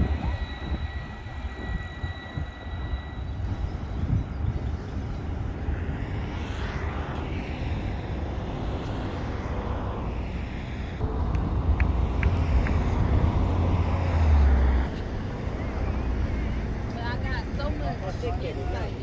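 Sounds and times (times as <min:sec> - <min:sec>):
thin high whine: 0:00.0 - 0:11.2
road traffic rumble: 0:00.0 - 0:19.0
wind on microphone: 0:00.0 - 0:19.0.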